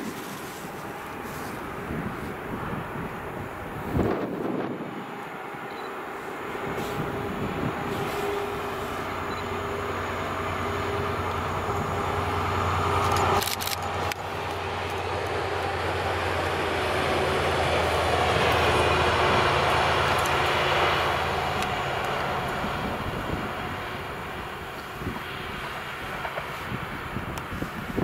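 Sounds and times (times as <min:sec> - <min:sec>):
diesel locomotive engine drone: 0:00.0 - 0:28.0.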